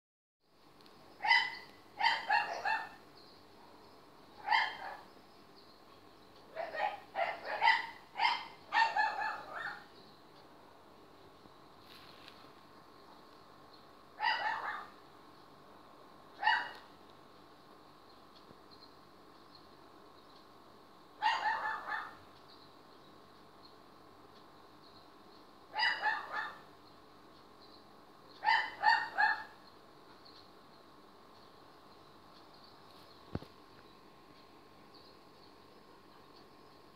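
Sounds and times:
dog yapping: 0:01.2 - 0:03.0, 0:04.4 - 0:05.0, 0:06.5 - 0:09.9, 0:14.2 - 0:15.0, 0:16.4 - 0:16.8, 0:21.2 - 0:22.2, 0:25.7 - 0:26.6, 0:28.4 - 0:29.6.

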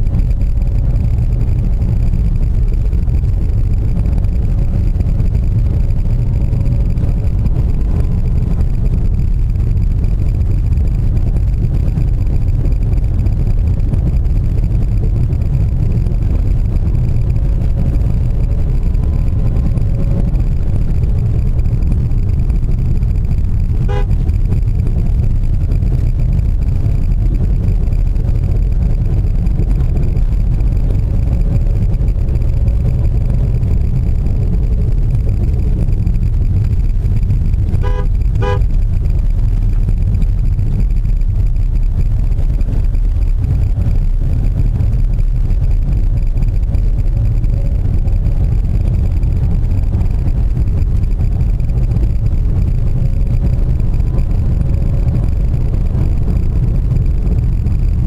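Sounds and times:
car driving rumble from inside: 0:00.0 - 0:58.0
car horn beeps: 0:23.8 - 0:24.3, 0:37.7 - 0:38.7.

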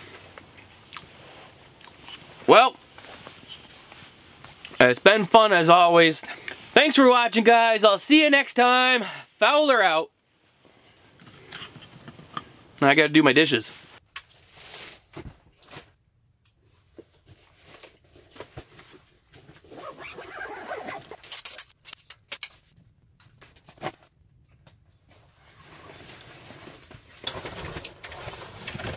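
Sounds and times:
backpack fabric rustling: 0:17.3 - 0:21.3.

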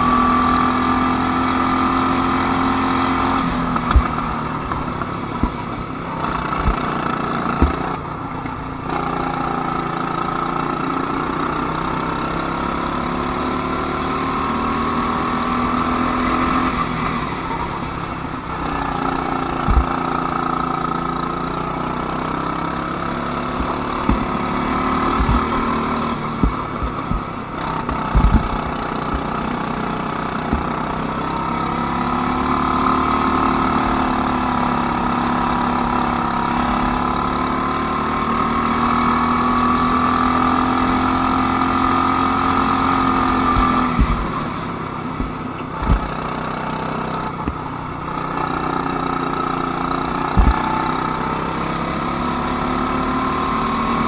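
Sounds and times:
go-kart engine running: 0:00.0 - 0:54.0
short thumps: 0:03.8 - 0:08.6, 0:19.0 - 0:20.3, 0:23.4 - 0:31.1, 0:43.2 - 0:44.4, 0:45.2 - 0:46.4, 0:50.3 - 0:50.9.

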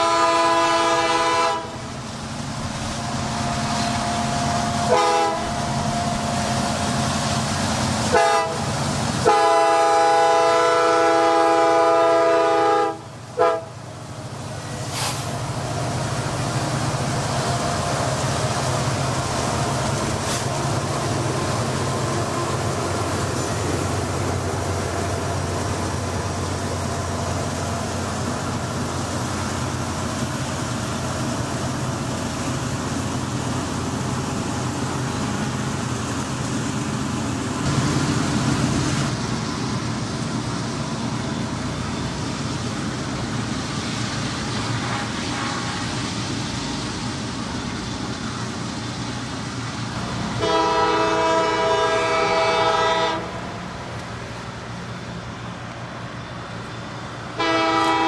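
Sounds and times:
locomotive horn blasts: 0:00.0 - 0:01.8, 0:03.4 - 0:06.3, 0:08.1 - 0:13.8, 0:44.8 - 0:46.0, 0:50.4 - 0:53.4, 0:57.4 - 0:58.0
diesel engines droning: 0:00.0 - 0:58.0
train wheels on rails: 0:00.0 - 0:58.0.

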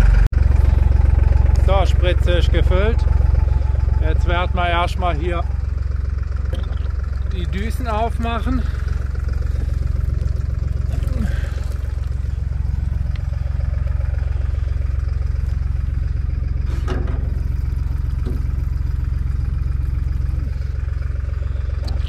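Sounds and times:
engine running steadily: 0:00.0 - 0:22.0.

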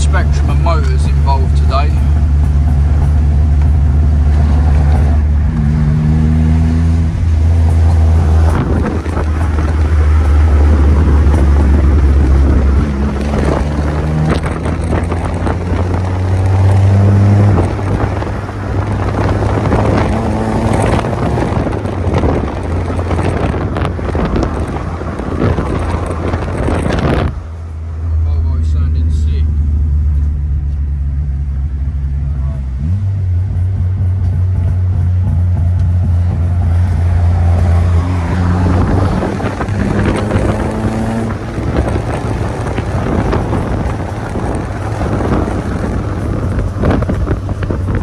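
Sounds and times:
car engine accelerating: 0:00.0 - 0:48.0
road noise inside car: 0:00.0 - 0:48.0.

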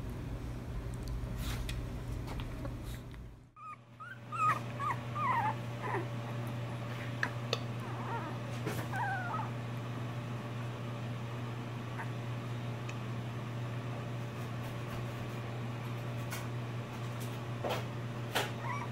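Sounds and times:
steady low hum: 0:00.0 - 0:18.9
puppy whining: 0:03.5 - 0:07.0, 0:07.8 - 0:09.7, 0:11.9 - 0:12.2, 0:18.4 - 0:18.9
puppies whimpering and yipping: 0:03.6 - 0:06.8, 0:07.8 - 0:09.6, 0:18.4 - 0:18.9.

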